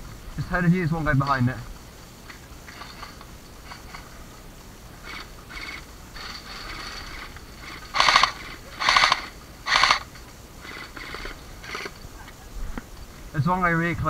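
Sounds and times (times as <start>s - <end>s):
faint rustles and clicks: 0.0s - 13.4s
airsoft gun full-auto bursts: 2.6s - 4.1s, 5.0s - 11.9s.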